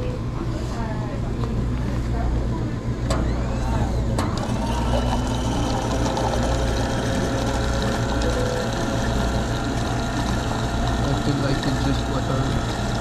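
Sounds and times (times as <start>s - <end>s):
machine humming: 2.8s - 13.0s.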